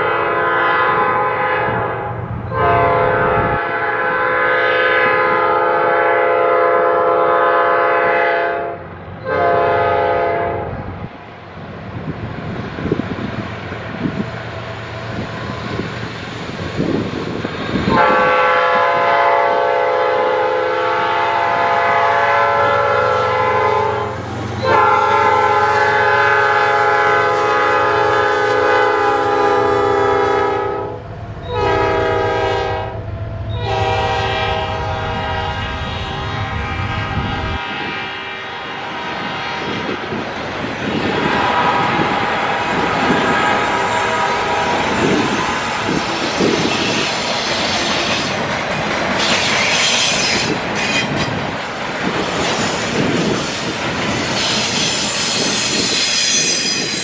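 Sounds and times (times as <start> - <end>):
locomotive air horn blasts: 0.0 - 10.9, 17.7 - 40.2, 40.9 - 47.1
train wheel noise: 0.0 - 57.0
locomotive engine rumble: 20.3 - 55.9.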